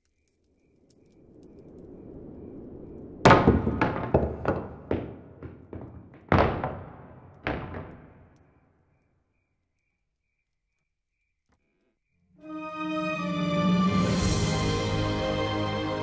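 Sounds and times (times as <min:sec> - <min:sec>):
low rumble: 0:00.7 - 0:08.3.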